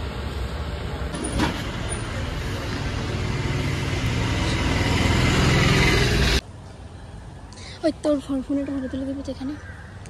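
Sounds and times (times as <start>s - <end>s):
vehicle engine hum: 0.0s - 7.2s
street traffic: 0.0s - 10.0s.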